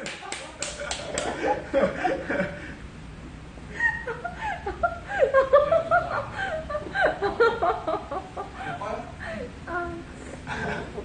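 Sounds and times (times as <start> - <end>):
woman and man laughing: 3.8 - 8.7.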